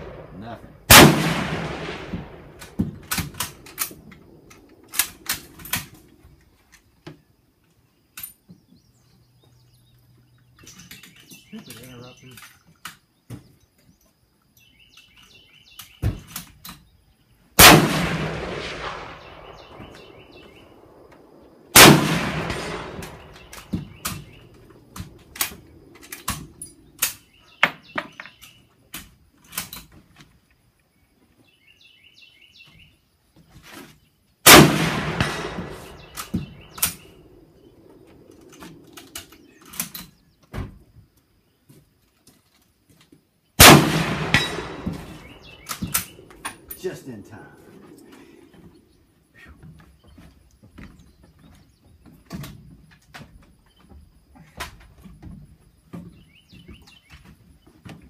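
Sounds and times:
loud rifle shots echoing: 0:00.0 - 0:06.1, 0:17.6 - 0:27.2, 0:34.4 - 0:38.8, 0:43.6 - 0:47.1
faint distant gunshots: 0:00.0 - 0:06.2, 0:17.6 - 0:27.0, 0:34.5 - 0:39.5, 0:43.6 - 0:48.3
birds chirping: 0:00.0 - 0:42.3, 0:43.4 - 0:58.0.

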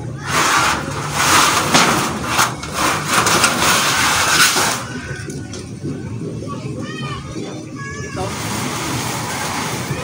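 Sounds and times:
iron roof sheeting scraping: 0:00.2 - 0:04.9.

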